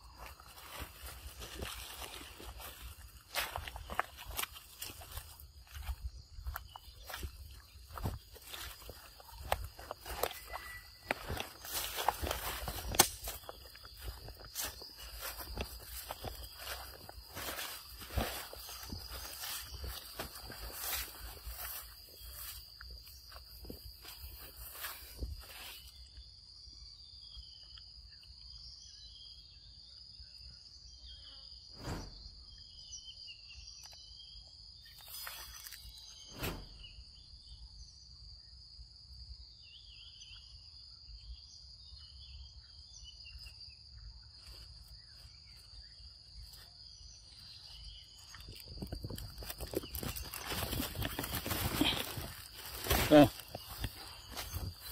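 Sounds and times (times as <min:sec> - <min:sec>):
bird-like chirps: 0:00.0 - 0:38.6
insects buzzing: 0:00.0 - 0:54.9.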